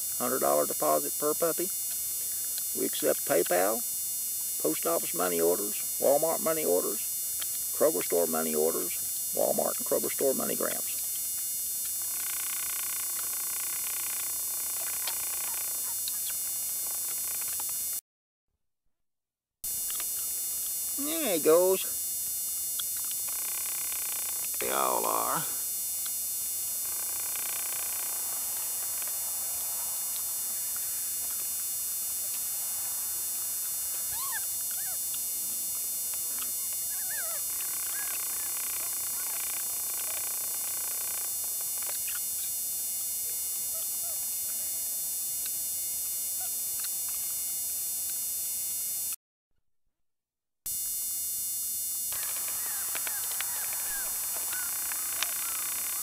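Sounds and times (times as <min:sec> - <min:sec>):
steady hiss: 0:00.0 - 0:17.9, 0:19.7 - 0:46.0, 0:52.1 - 0:56.0
puppies squeaking and yipping: 0:36.9 - 0:38.5.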